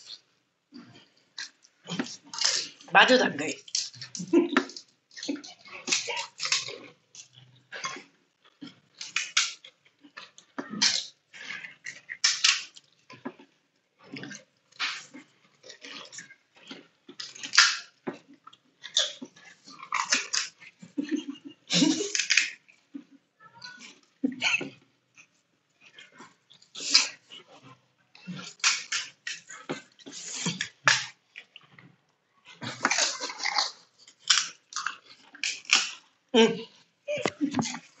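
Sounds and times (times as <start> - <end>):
people chewing: 0.0 - 38.0
slurping: 0.8 - 31.8, 32.4 - 38.0
shell cracking: 12.1 - 12.8, 28.5 - 29.5, 32.9 - 36.0.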